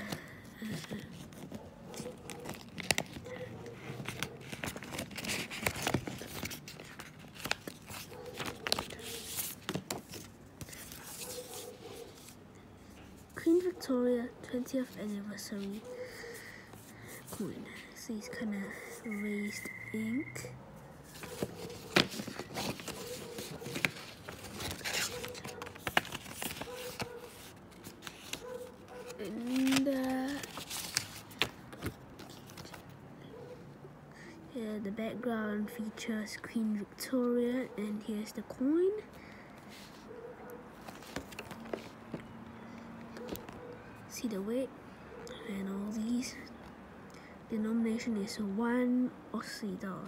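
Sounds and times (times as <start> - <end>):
packaging clicks and taps: 0.0 - 9.0
plastic packaging rustling: 0.0 - 12.4, 21.0 - 32.9, 40.8 - 42.4
plastic and card crinkling: 0.0 - 13.9, 21.0 - 33.0, 40.7 - 43.8.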